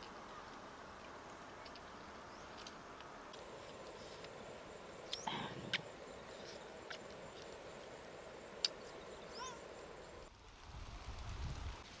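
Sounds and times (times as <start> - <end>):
faint outdoor background: 0.0 - 12.0
high chirping animal call: 9.2 - 9.7.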